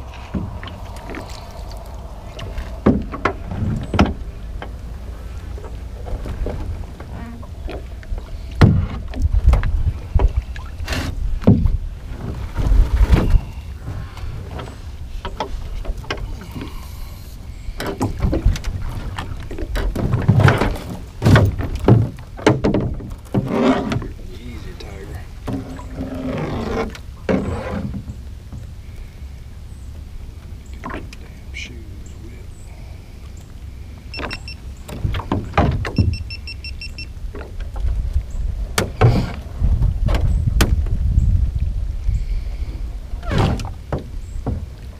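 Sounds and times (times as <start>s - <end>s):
low rumble: 0.0s - 22.3s
wind rumble on microphone: 0.0s - 44.9s
knocks and clunks on boat hull: 2.4s - 4.8s, 5.6s - 13.5s, 17.8s - 24.2s, 25.4s - 28.7s, 34.2s - 41.2s, 43.2s - 44.9s.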